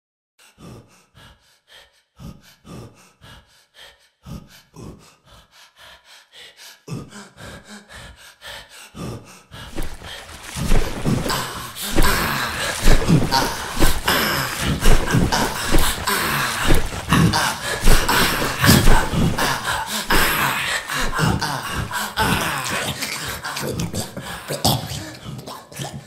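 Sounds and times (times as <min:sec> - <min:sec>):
person breathing quickly: 0:00.4 - 0:25.4
person grunting gasps: 0:09.0 - 0:25.4.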